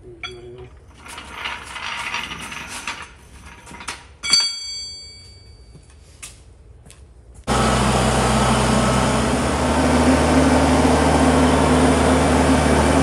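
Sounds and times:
sharp metallic clang: 0:04.2 - 0:05.7.

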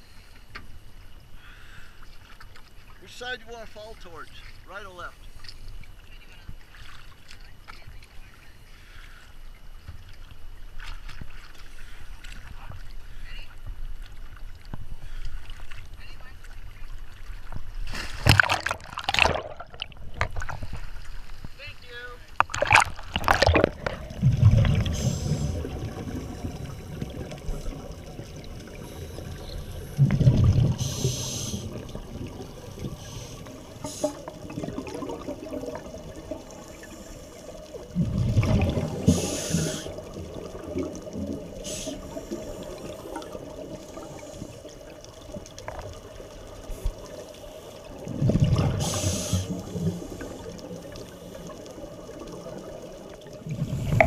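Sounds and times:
underwater background: 0:00.0 - 0:54.0
scuba regulator breathing: 0:24.7 - 0:25.8, 0:28.7 - 0:31.9, 0:32.7 - 0:34.4, 0:39.0 - 0:40.1, 0:41.6 - 0:43.3, 0:48.7 - 0:51.5.

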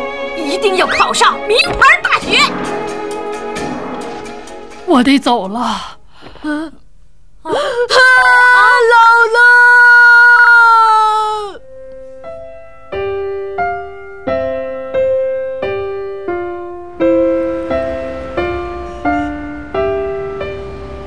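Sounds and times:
slow piano melody: 0:00.0 - 0:04.9, 0:11.6 - 0:21.0.

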